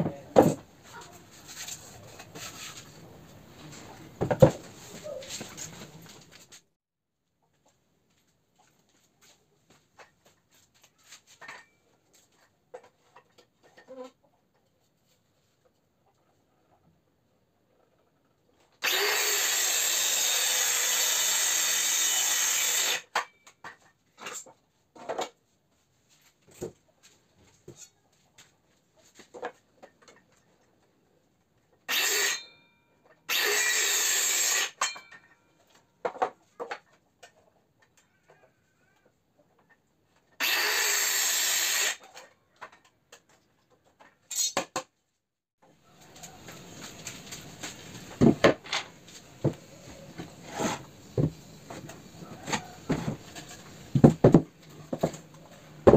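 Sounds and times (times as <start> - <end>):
circular saw cutting plywood: 18.8 - 23.2, 31.9 - 32.5, 33.3 - 35.1, 40.4 - 42.2, 49.4 - 54.4
boards handled clicks and knocks: 46.0 - 55.9.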